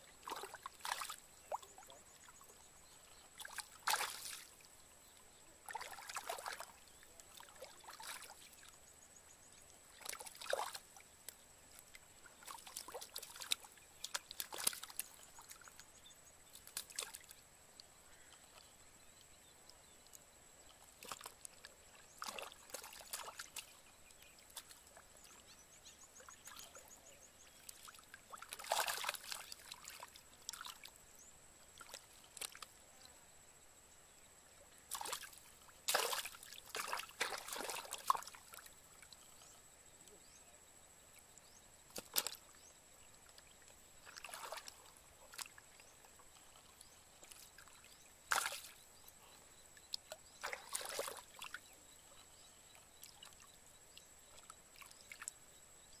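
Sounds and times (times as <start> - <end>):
hands splashing in muddy water: 3.4 - 4.5, 12.4 - 15.1, 28.4 - 30.7, 34.9 - 38.4, 42.0 - 42.4, 44.1 - 45.6, 48.3 - 48.7.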